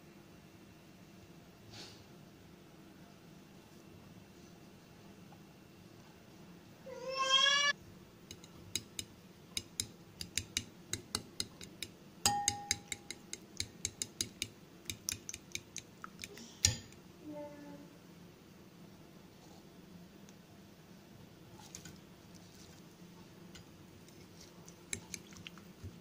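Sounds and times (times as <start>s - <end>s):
cat meowing: 6.9s - 7.8s
fork clinking against ceramic bowl: 8.3s - 17.0s, 24.9s - 25.6s.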